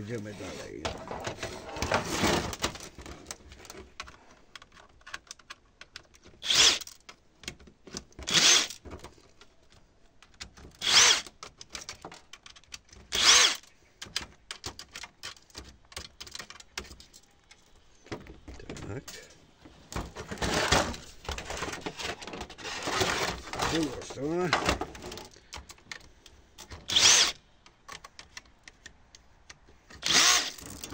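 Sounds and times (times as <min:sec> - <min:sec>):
cordless drill whining: 0:06.4 - 0:06.8, 0:08.3 - 0:08.8, 0:10.8 - 0:11.3, 0:13.2 - 0:13.6, 0:26.8 - 0:27.4, 0:30.0 - 0:30.7
metal clicks and taps: 0:27.6 - 0:29.8.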